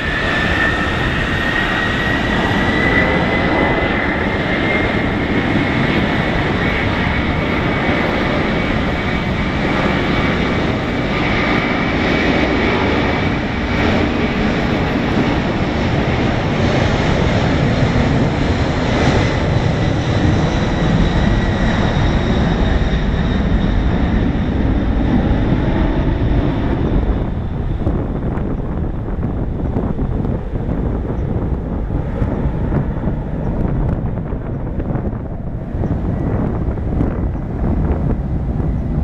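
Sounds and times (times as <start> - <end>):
jet engine roar with whine: 0.0 - 39.0.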